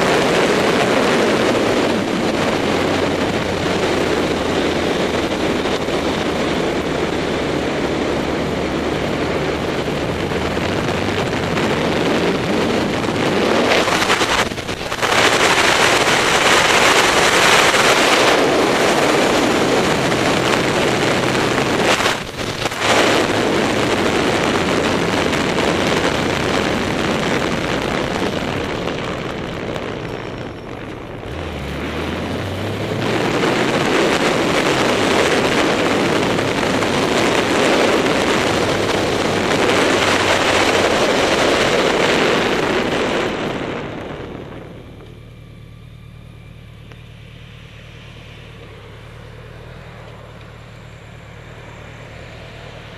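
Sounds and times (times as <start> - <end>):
wind rushing over microphone: 0.0 - 46.5
motorcycle engine running: 0.0 - 52.9.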